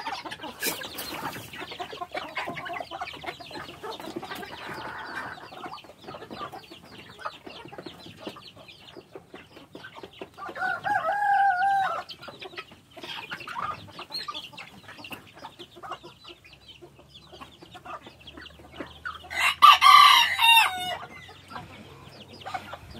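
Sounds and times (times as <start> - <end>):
beaks pecking grain: 0.0 - 22.9
hens clucking: 0.0 - 22.9
rooster crowing: 10.6 - 12.0, 19.3 - 21.1.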